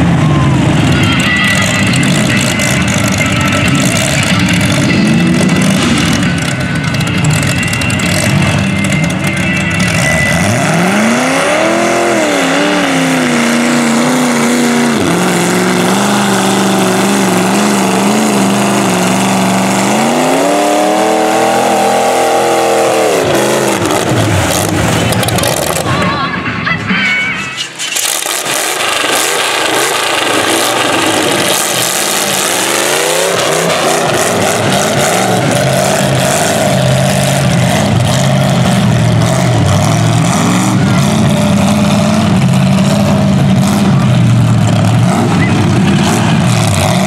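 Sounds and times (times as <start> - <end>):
truck engine revving: 0.0 - 26.7, 27.4 - 47.0
loud rushing noise: 27.5 - 47.0.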